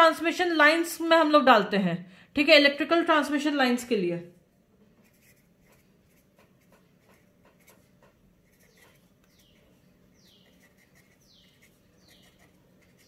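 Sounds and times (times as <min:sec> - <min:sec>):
pen scratching on paper: 0:05.0 - 0:13.0.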